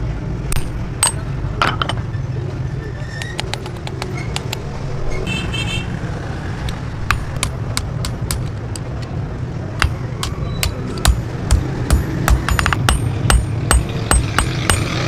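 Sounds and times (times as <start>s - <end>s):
hammer striking steel on anvil: 0.5s - 1.3s, 7.1s - 8.9s, 9.8s - 15.0s.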